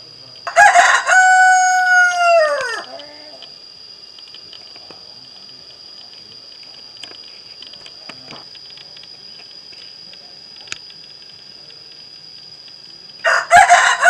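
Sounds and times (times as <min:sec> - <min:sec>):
steady high-pitched tone: 0:00.0 - 0:14.0
rooster crowing: 0:00.5 - 0:03.4, 0:13.2 - 0:14.0.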